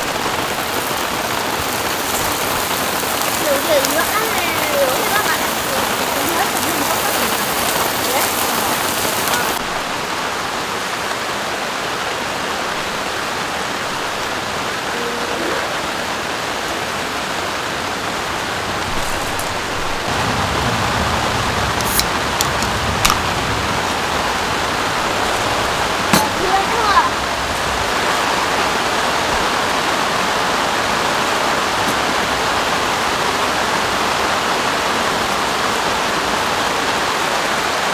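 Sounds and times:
steady rain falling: 0.0 - 37.9
metal dishes clinking: 26.2 - 26.5.

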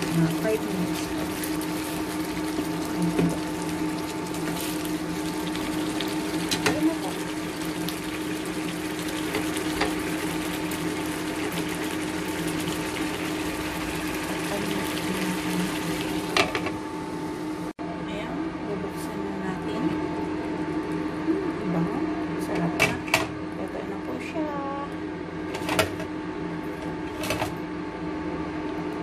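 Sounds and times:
sauce bubbling in a pan: 0.0 - 16.5
steady low hum: 0.0 - 29.0.

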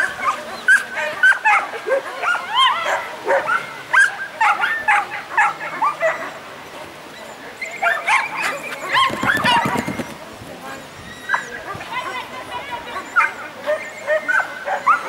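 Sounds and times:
dog barking in high yips: 7.8 - 10.0, 13.0 - 15.0.

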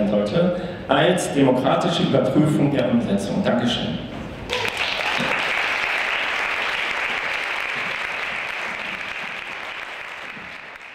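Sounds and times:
audience applauding: 4.5 - 10.9.

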